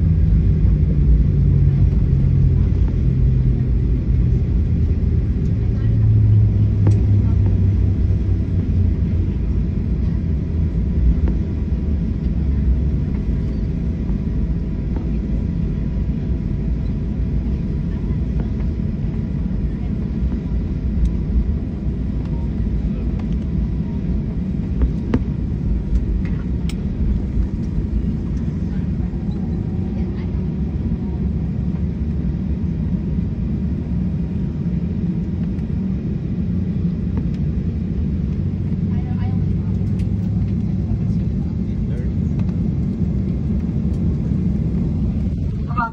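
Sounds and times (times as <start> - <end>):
airplane cabin rumble: 0.0 - 45.9.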